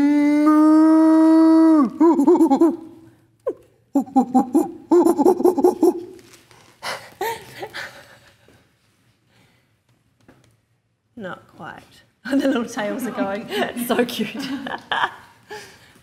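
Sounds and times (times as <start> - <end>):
woman making wavering warbles: 0.0 - 6.2.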